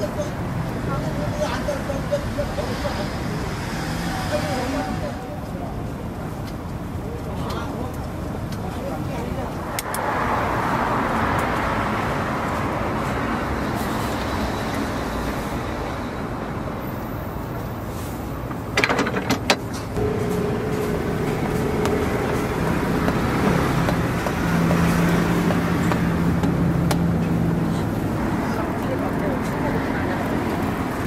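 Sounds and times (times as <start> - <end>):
passing traffic: 0.0 - 31.0.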